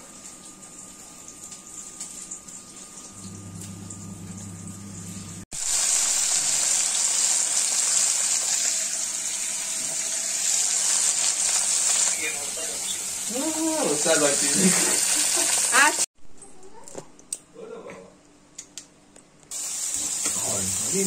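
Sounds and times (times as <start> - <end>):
fish sizzling in hot oil: 5.5 - 16.1, 19.5 - 21.0.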